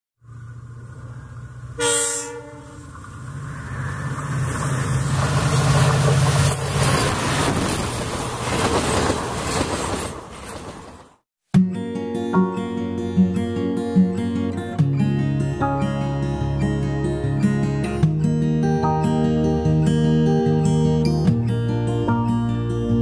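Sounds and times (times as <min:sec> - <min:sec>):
diesel locomotive engine droning: 0:00.2 - 0:11.2
train horn blast: 0:01.7 - 0:03.0
train wheels on rails: 0:02.8 - 0:11.2.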